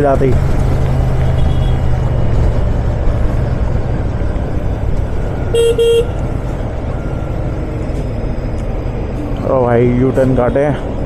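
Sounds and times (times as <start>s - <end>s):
road and wind noise: 0.0s - 11.0s
vehicle horn toots: 1.4s - 1.9s, 5.5s - 6.2s.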